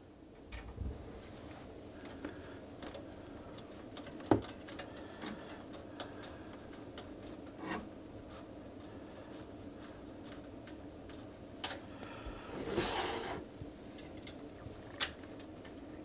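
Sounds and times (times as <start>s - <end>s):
faint steady hum: 0.0s - 16.0s
cable connectors clicking: 2.0s - 7.6s.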